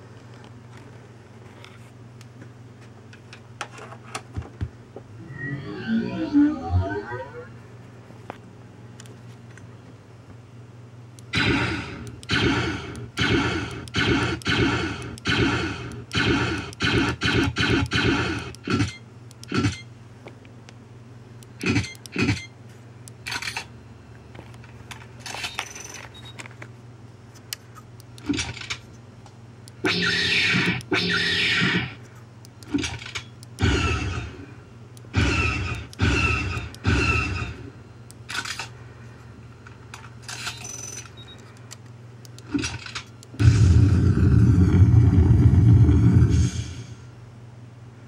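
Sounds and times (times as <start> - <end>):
low electrical hum: 0.0 - 48.0
falling tone effect: 5.2 - 7.6
blaster shot sound effects: 11.4 - 18.4.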